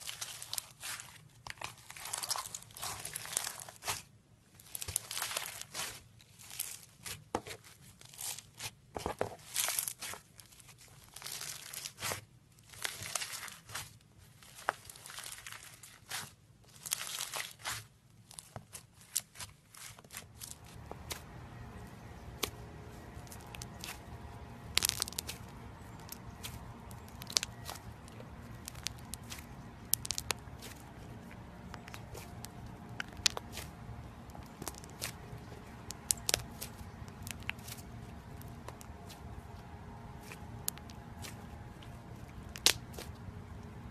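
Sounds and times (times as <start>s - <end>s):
slime crunching and crackling: 0.0s - 8.8s, 9.4s - 43.9s.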